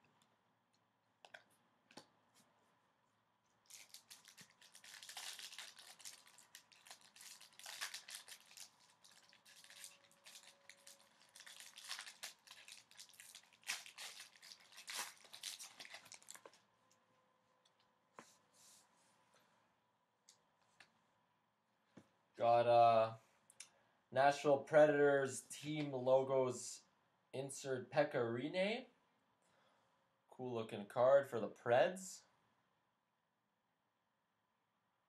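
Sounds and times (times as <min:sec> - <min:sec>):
wrapper tearing and crinkling: 0:03.6 - 0:16.6.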